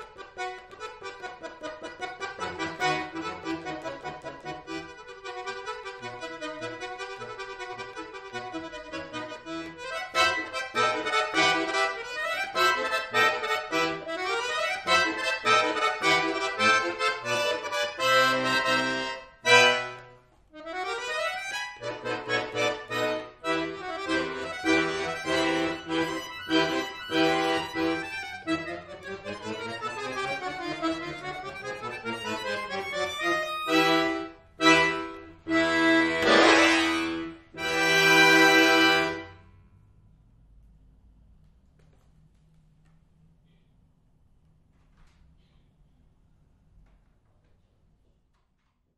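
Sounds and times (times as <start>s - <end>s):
accordion playing fast runs: 0.0s - 39.4s.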